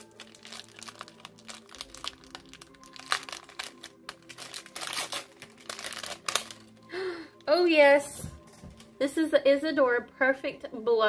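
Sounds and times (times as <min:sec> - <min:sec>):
wrapping paper tearing and crinkling: 0:00.0 - 0:06.8.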